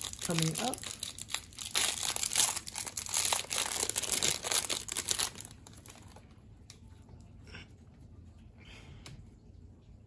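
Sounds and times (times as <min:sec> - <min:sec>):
foil wrapper crinkling: 0:00.0 - 0:06.3.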